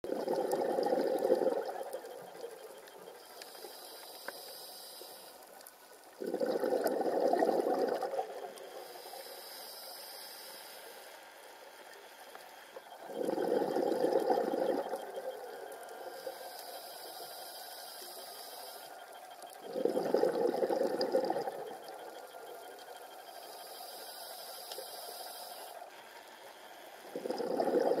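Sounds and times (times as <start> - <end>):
bubbling underwater exhale: 0.1 - 2.3, 6.2 - 8.6, 12.9 - 15.8, 19.6 - 22.3, 27.1 - 28.0
regulator inhale hiss: 3.4 - 5.6, 8.6 - 11.6, 15.7 - 20.2, 23.3 - 28.0.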